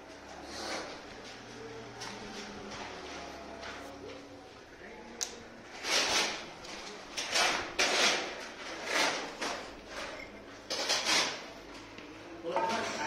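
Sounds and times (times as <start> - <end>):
stone strip scraping against brick: 5.8 - 6.5, 7.2 - 11.5.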